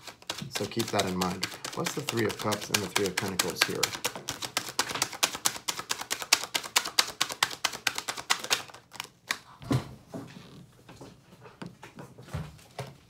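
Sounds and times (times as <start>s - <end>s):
cards being shuffled: 0.0s - 9.6s.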